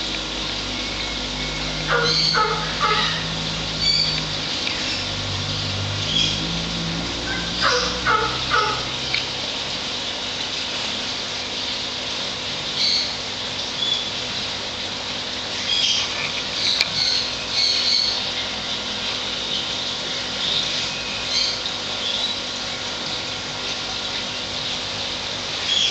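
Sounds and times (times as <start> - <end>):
aquarium filter pump humming: 0.0 - 25.9
chirping calls: 0.7 - 5.1, 7.3 - 8.9.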